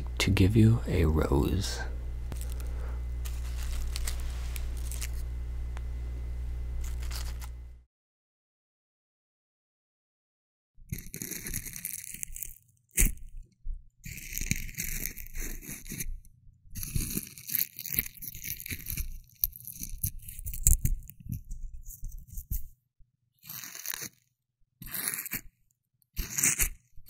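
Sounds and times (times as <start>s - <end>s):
rose crinkling and rustling: 2.3s - 5.4s, 6.8s - 7.7s.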